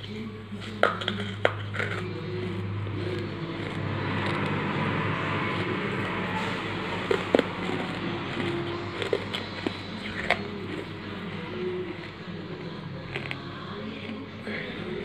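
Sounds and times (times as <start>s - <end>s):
steady rushing noise: 1.5s - 12.3s.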